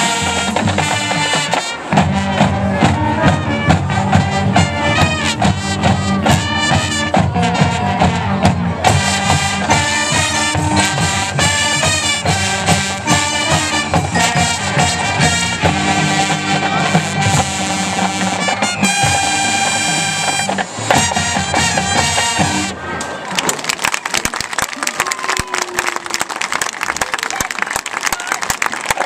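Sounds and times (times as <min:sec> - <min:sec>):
marching drums: 0:00.0 - 0:22.8
brass section: 0:00.0 - 0:23.0.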